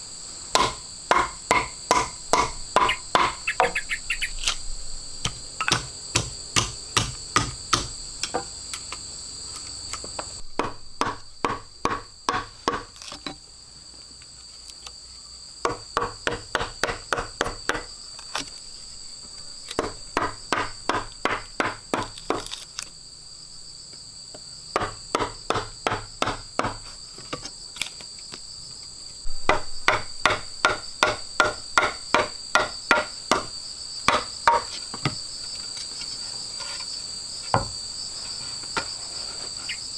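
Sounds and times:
insect buzzing: 0.0s - 39.9s
hand tool striking wood: 0.5s - 3.8s, 5.2s - 8.5s, 10.0s - 13.4s, 15.6s - 17.9s, 19.7s - 22.6s, 24.7s - 27.5s, 29.4s - 33.5s, 34.1s - 35.2s, 37.5s - 37.8s.

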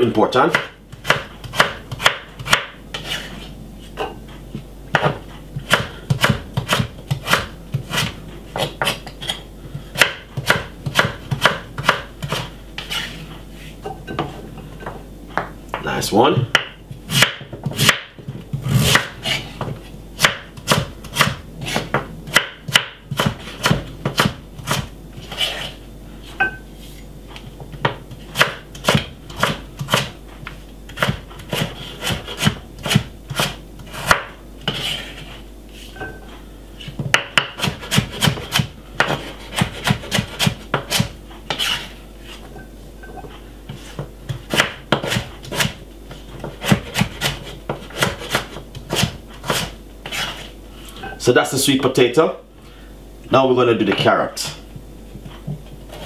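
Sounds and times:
knife chopping on wooden board: 0.5s - 3.3s, 4.9s - 13.2s, 16.5s - 25.7s, 27.8s - 30.2s, 30.9s - 35.0s, 36.8s - 41.9s, 43.7s - 45.8s, 46.4s - 50.4s.

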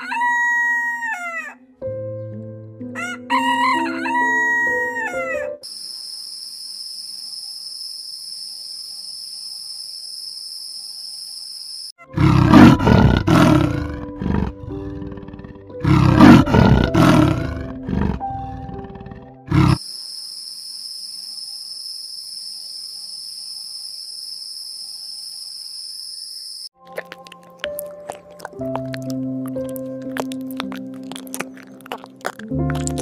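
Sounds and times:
rooster crowing: 0.0s - 1.6s, 3.0s - 5.5s
background music sustained notes: 0.1s - 5.6s, 12.1s - 19.8s, 26.8s - 33.0s
insect trill: 5.6s - 12.0s, 19.5s - 28.2s
big cat roaring: 12.0s - 19.8s.

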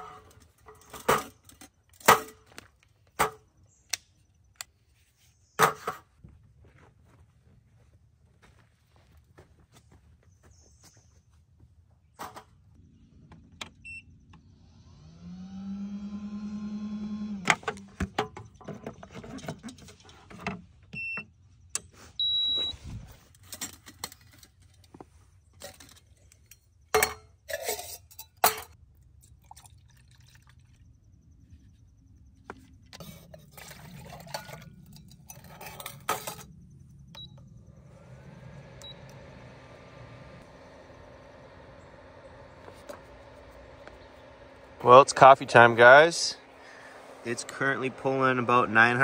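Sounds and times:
camp cooking gear clattering: 0.0s - 3.6s, 23.2s - 28.8s, 32.9s - 36.6s
small motor whirring: 13.7s - 17.9s, 36.2s - 49.0s
short electronic beeps: 22.2s - 22.8s.

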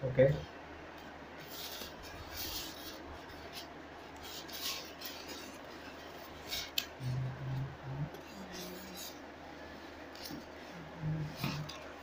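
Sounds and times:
polystyrene foam scraping: 1.4s - 7.3s.

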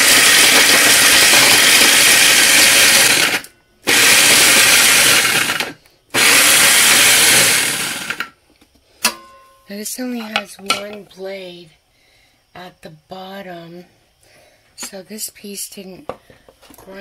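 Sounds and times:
electric food chopper grinding: 0.0s - 8.4s.

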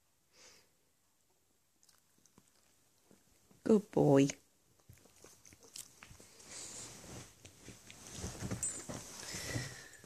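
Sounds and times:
soft fabric rustling: 5.7s - 10.0s.

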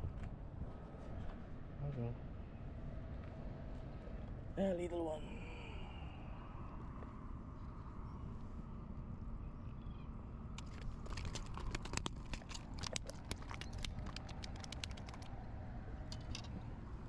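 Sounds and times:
fish flopping on concrete: 10.6s - 15.4s.

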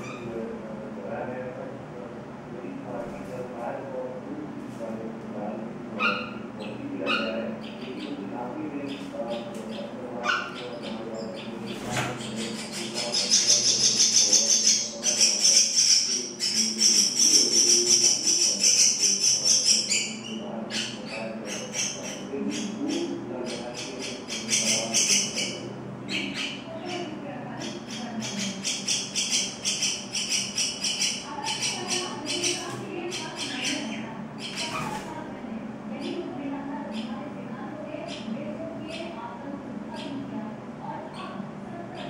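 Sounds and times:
nestlings chirping: 6.0s - 35.1s, 36.8s - 37.2s.

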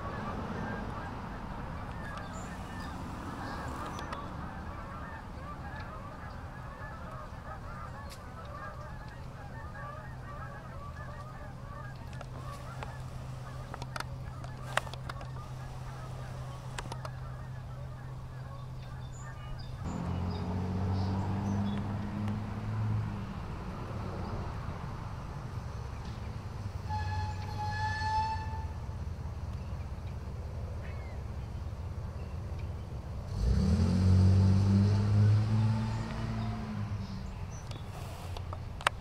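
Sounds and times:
many birds chattering: 0.0s - 22.2s, 30.7s - 33.0s
steady low hum: 8.8s - 19.9s
sharp clicks: 16.6s - 17.2s.

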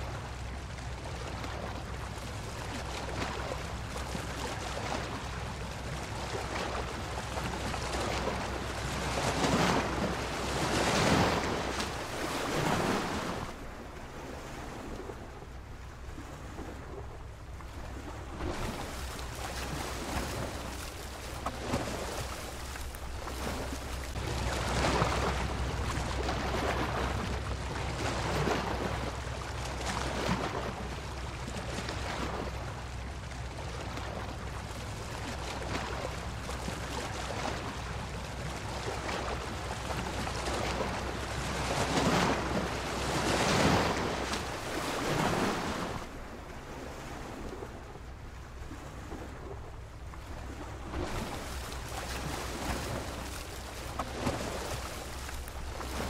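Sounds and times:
waves breaking and washing in: 0.0s - 56.0s
steady low rumble: 14.9s - 36.8s, 47.7s - 56.0s.

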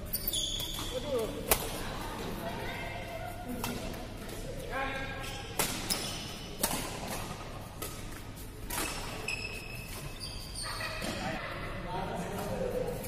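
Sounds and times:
short high squeaks: 0.0s - 1.0s, 8.8s - 11.0s
rackets hitting shuttlecock: 0.6s - 1.8s, 3.5s - 4.5s, 5.2s - 10.1s.

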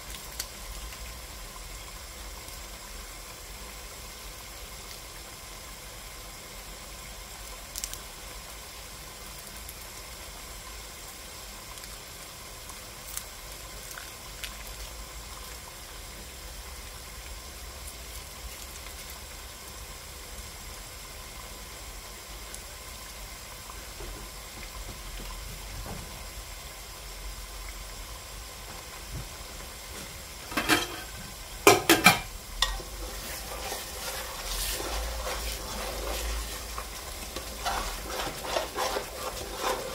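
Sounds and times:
stew bubbling in a pot: 0.0s - 39.9s
stirring: 30.5s - 39.9s
metal ladle knocking on pot: 31.7s - 32.8s.

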